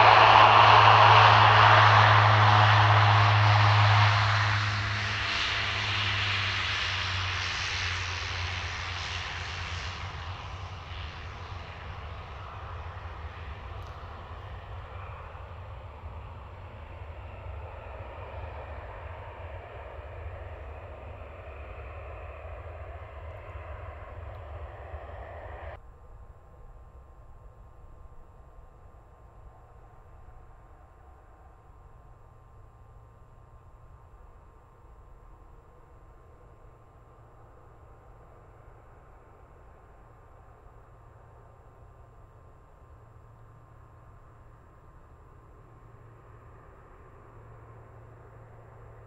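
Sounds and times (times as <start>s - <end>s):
rushing noise: 0.0s - 25.8s
turboprop engines droning: 0.0s - 49.0s.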